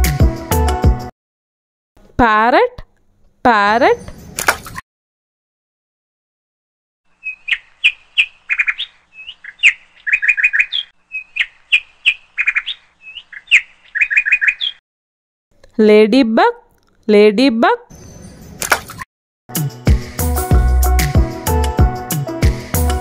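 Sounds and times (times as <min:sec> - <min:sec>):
parrot chirping: 0:07.2 - 0:14.8.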